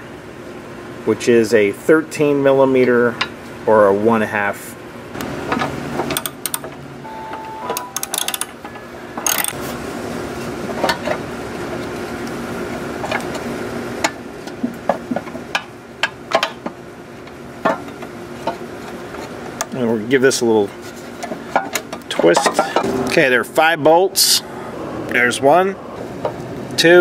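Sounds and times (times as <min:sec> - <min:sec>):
ratchet wrench clicking: 0:06.1 - 0:06.7, 0:08.0 - 0:08.5, 0:09.2 - 0:09.6.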